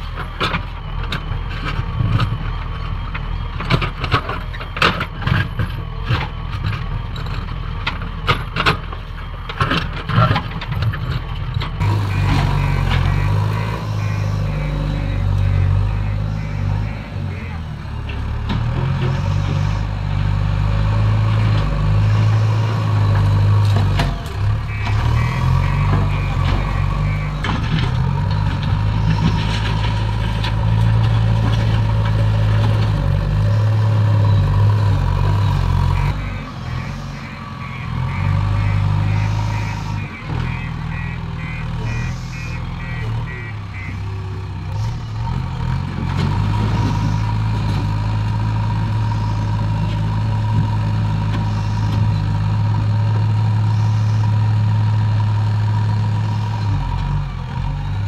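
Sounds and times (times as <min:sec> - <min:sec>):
diesel engine droning: 0:00.0 - 0:58.0
reversing alarm beeping: 0:11.8 - 0:17.7, 0:24.6 - 0:27.8, 0:35.9 - 0:44.2, 0:53.6 - 0:54.4.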